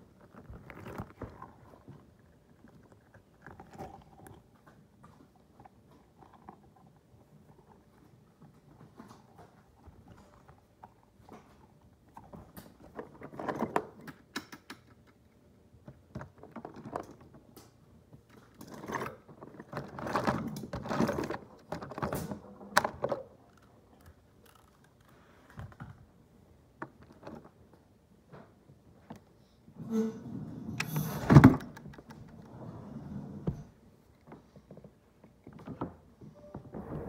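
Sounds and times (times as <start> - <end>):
clicks taps and rustling handling: 0.0 - 26.1.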